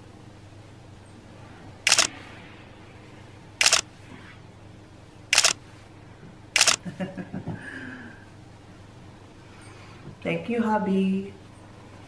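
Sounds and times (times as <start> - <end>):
camera shutter clicks: 1.9 - 2.2, 3.6 - 3.9, 5.3 - 5.6, 6.6 - 6.8.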